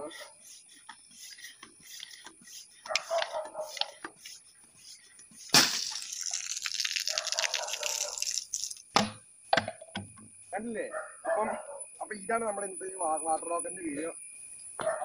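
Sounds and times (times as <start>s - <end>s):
floor pump strokes: 0.0s - 6.2s
hissing water spray: 0.4s - 9.0s
water rocket launching whoosh: 5.5s - 7.2s.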